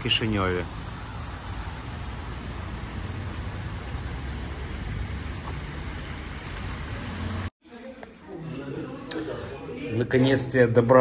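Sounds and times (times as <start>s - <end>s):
traffic on wet roads: 0.0s - 7.5s.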